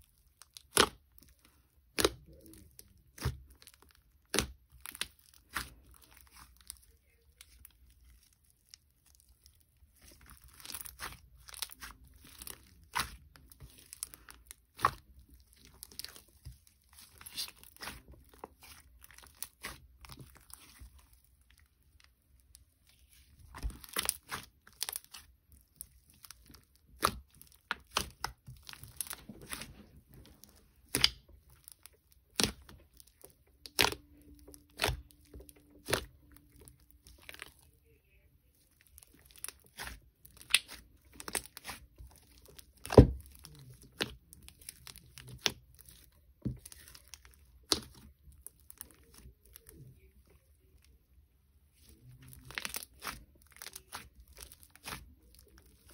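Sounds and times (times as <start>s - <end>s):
slime squished popping: 0.4s - 6.8s, 30.8s - 37.5s, 39.2s - 49.6s, 52.5s - 55.9s.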